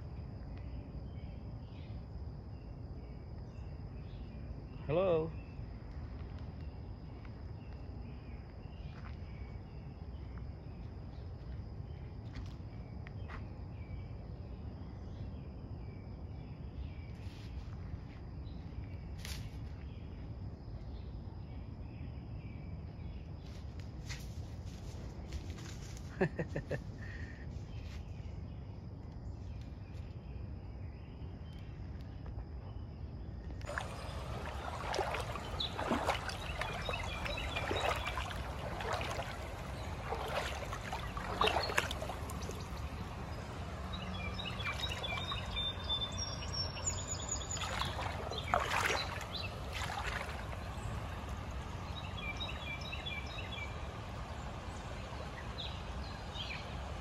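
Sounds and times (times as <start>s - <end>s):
water splashes: 33.6s - 57.0s
water trickling over rocks: 33.6s - 57.0s.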